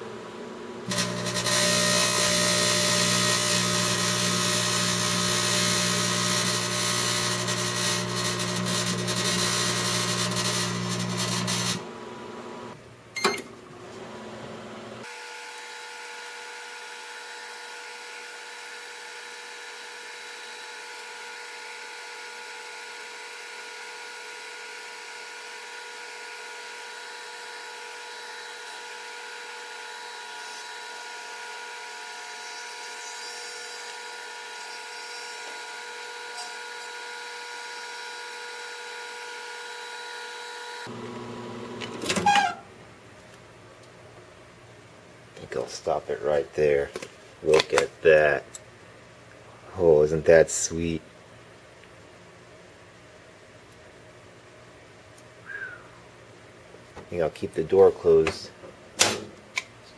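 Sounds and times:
microwave oven humming: 0.0s - 43.0s.

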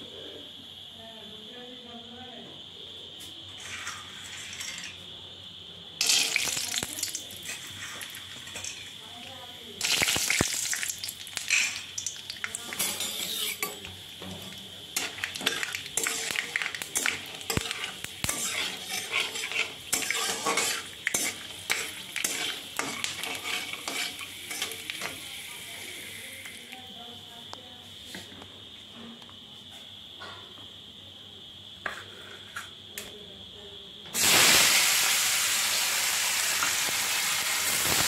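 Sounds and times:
peanuts sizzling in oil: 3.5s - 26.9s, 34.1s - 38.0s
metal spatula scraping pan: 3.6s - 5.0s, 12.7s - 13.8s, 15.0s - 24.9s.

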